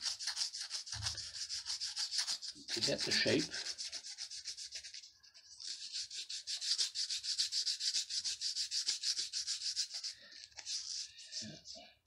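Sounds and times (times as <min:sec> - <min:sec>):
sandpaper rubbing on wood: 0:00.0 - 0:11.8.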